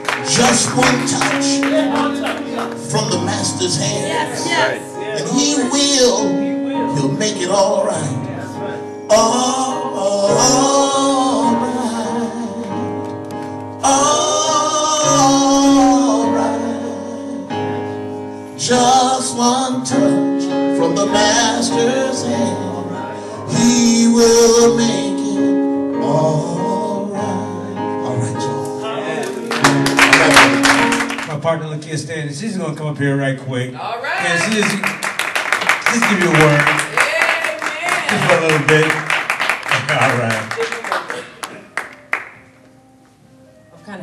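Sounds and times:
electronic keyboard chords: 0.0 - 31.4
man singing into a microphone: 0.2 - 8.3, 9.0 - 13.2, 13.8 - 17.6, 18.6 - 28.6.

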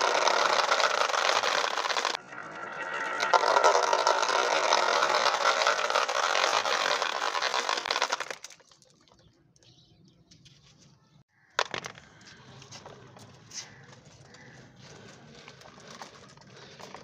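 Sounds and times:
marbles rolling and clattering: 0.0 - 9.2, 11.6 - 17.0.

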